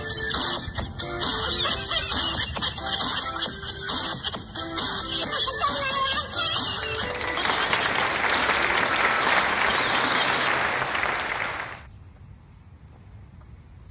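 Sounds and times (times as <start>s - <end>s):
crowd applause: 6.9s - 11.9s.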